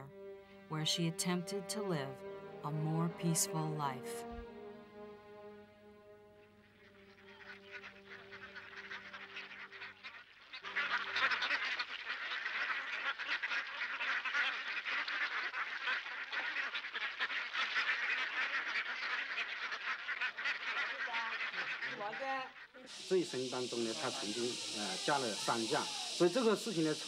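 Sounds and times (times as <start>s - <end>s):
held music notes: 0.0s - 8.4s
waterfowl flock calling: 0.0s - 27.0s.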